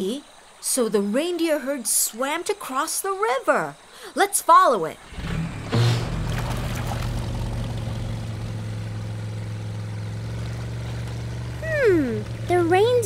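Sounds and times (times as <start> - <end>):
short splash: 5.0 - 11.6
cartoon motor humming: 11.6 - 13.0.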